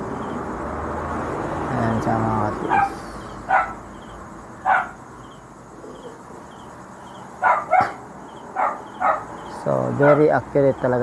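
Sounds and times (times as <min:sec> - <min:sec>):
dog barking: 0:02.6 - 0:03.8, 0:04.6 - 0:05.0, 0:07.4 - 0:10.4.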